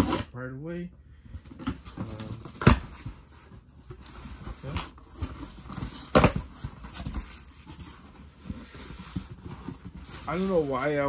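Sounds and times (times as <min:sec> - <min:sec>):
cardboard box rustling: 0:01.5 - 0:11.0
sharp knocks or rips: 0:05.8 - 0:07.3.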